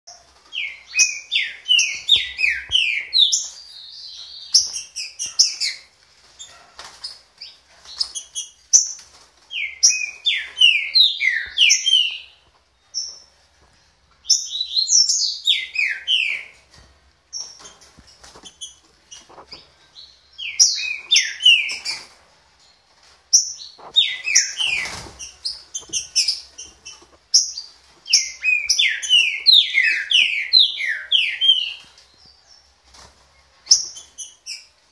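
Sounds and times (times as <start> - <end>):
bird whistling song: 9.6 - 12.3, 28.1 - 31.9.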